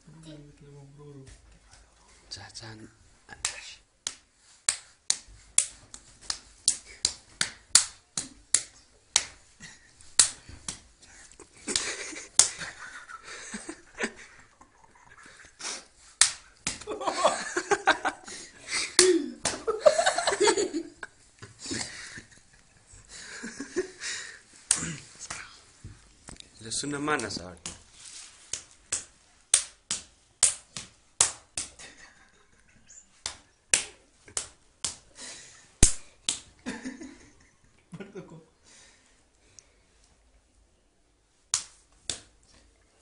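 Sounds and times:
hand slapping a face: 3.4 - 9.5, 10.1 - 10.9, 11.6 - 13.7, 16.0 - 18.2, 18.9 - 20.6, 24.6 - 25.5, 27.1 - 32.0, 33.1 - 35.2, 35.8 - 36.6, 41.5 - 42.4
people laughing: 11.4 - 15.5, 16.8 - 18.5, 19.5 - 24.0.

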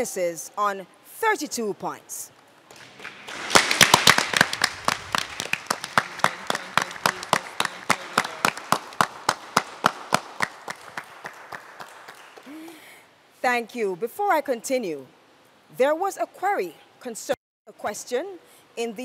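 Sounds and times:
hand clapping: 2.7 - 12.8.

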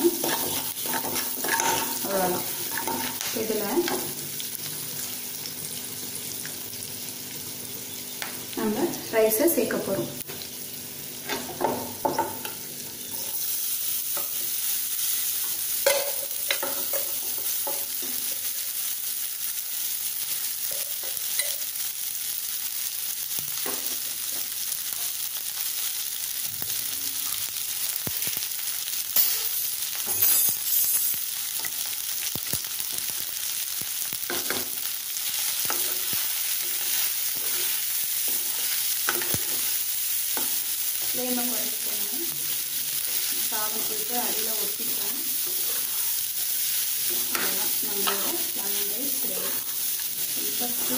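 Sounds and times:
spoon scraping a pan: 0.0 - 4.1, 35.3 - 41.2, 45.3 - 50.9
food sizzling in oil: 0.0 - 50.9.

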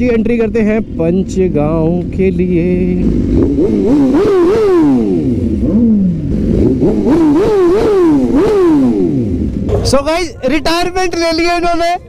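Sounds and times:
motorcycle engine revving: 0.0 - 10.2.

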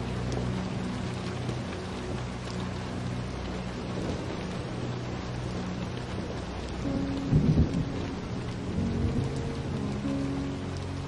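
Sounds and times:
steady rain falling: 0.0 - 11.0
low roll of thunder: 3.0 - 11.0.

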